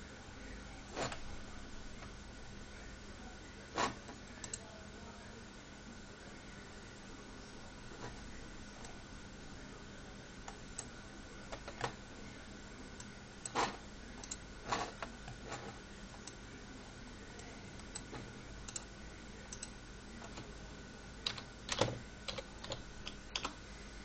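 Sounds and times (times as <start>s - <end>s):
faint steady hum: 0.0s - 24.0s
computer clicks and taps: 4.4s - 4.7s, 10.4s - 12.0s, 13.0s - 16.4s, 17.4s - 18.9s, 21.2s - 23.6s.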